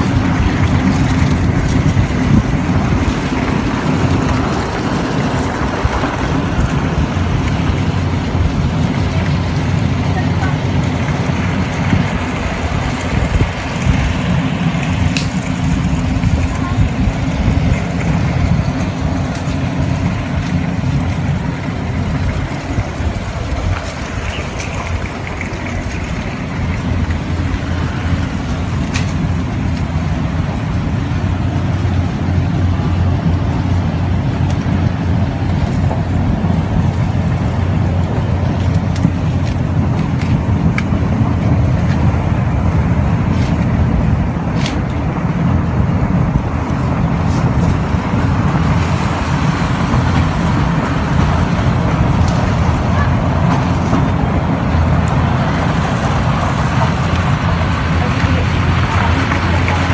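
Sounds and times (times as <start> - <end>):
engine droning: 0.0 - 59.9.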